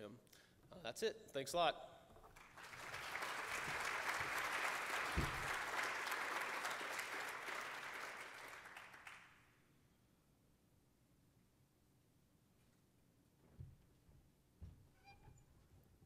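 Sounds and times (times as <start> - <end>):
audience applauding: 2.3 - 9.4
low thump: 5.2 - 5.5.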